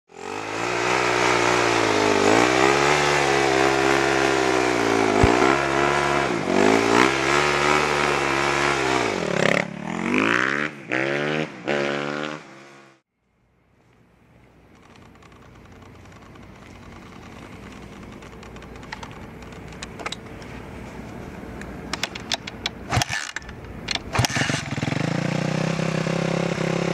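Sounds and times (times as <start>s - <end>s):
motocross engine running: 0.1s - 10.4s, 14.7s - 20.4s, 24.1s - 26.9s
exhaust pop: 5.1s - 5.8s.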